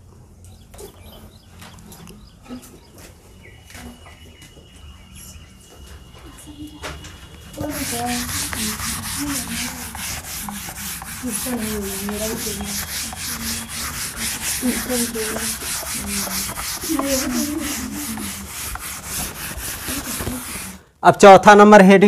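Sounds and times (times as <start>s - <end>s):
duster rubbing on chalkboard: 7.2s - 20.8s.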